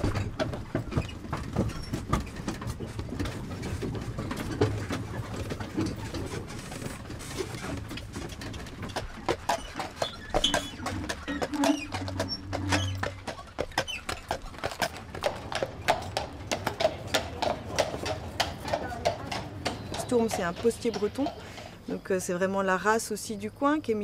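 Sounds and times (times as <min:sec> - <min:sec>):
wagon rattling and rumbling: 0:00.0 - 0:22.1
hooves clopping on road: 0:00.0 - 0:22.8
birds calling: 0:09.0 - 0:22.2.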